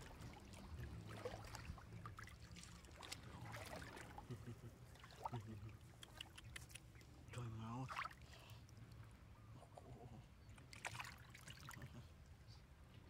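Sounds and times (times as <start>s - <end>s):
small splashes and knocks: 0.0s - 4.2s, 10.6s - 11.9s
water splashing and trickling: 0.0s - 9.1s, 10.6s - 12.3s.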